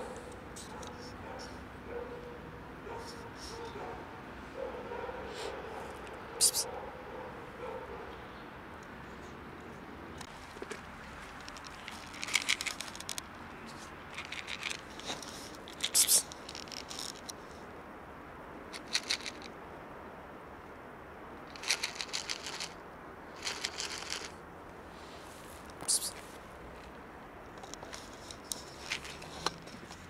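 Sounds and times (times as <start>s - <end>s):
plastic container crinkling: 10.3s - 13.2s, 23.4s - 24.3s.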